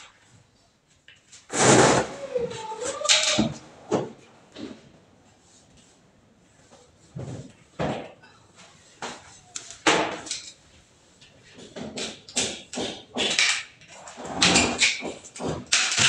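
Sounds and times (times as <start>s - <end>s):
tools knocking and scraping: 11.2s - 16.0s.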